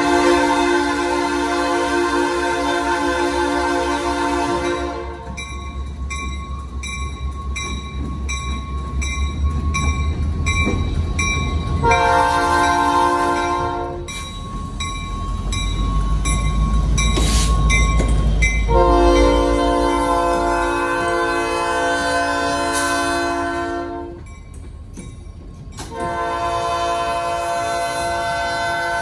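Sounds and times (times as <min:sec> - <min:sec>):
locomotive air horn blasts: 0:00.0 - 0:05.3, 0:11.8 - 0:14.1, 0:18.7 - 0:24.2, 0:25.9 - 0:29.0
railroad crossing bell ringing: 0:03.6 - 0:28.4.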